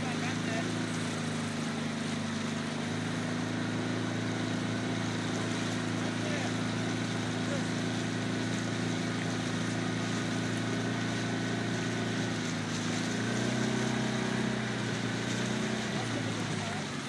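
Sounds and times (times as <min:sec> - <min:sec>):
small outboard motor running: 0:00.0 - 0:17.0
wind and water hiss: 0:00.0 - 0:17.0.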